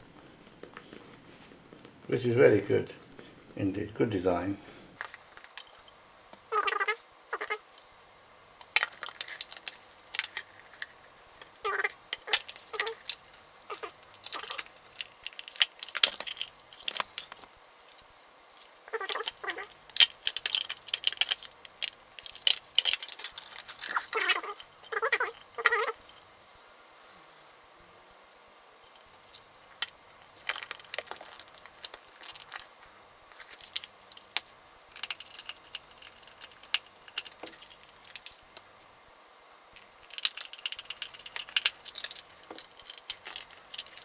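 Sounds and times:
plastic parts clicking and scraping: 5.0 - 5.9, 8.6 - 26.3, 28.8 - 38.7, 39.8 - 44.0.

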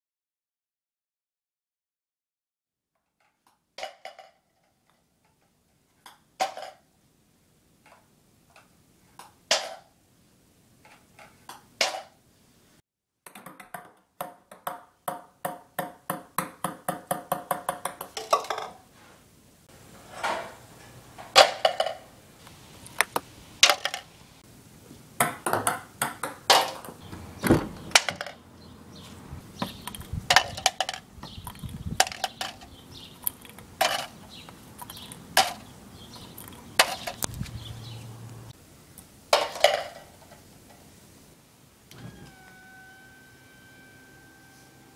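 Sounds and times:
ping pong balls bouncing: 13.2 - 18.8, 25.2 - 27.0, 29.6 - 31.3.

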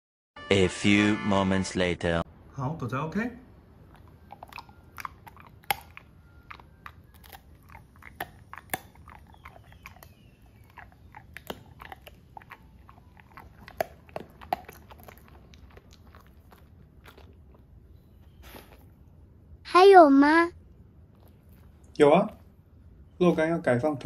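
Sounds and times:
dog chewing jerky: 3.9 - 17.6.

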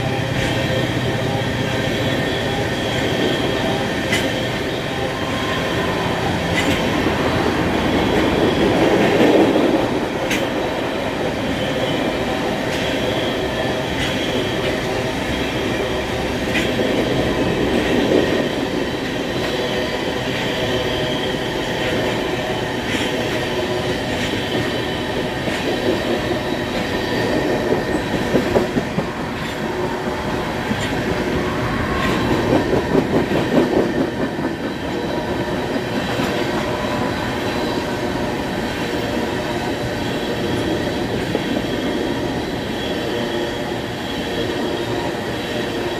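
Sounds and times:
freight train rumbling on rails: 0.0 - 45.9
wheels clicking over rail joints: 6.0 - 10.6.

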